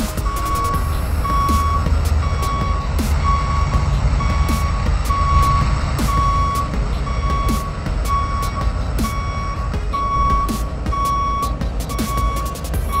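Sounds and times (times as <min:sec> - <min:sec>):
low engine rumble: 0:00.0 - 0:13.0
truck reversing alarm beeping: 0:00.0 - 0:13.0.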